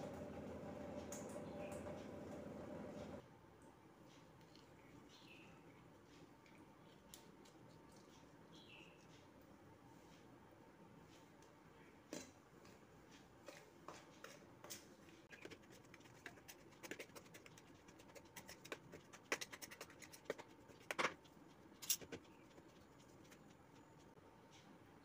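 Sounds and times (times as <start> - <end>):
hands mixing flour in metal plate: 13.1 - 24.2.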